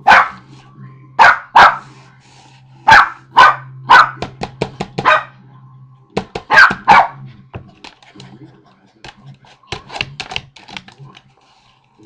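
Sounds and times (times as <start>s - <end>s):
small dog barking: 0.0s - 0.4s, 1.2s - 1.8s, 2.9s - 4.2s, 5.0s - 5.3s, 6.5s - 7.2s.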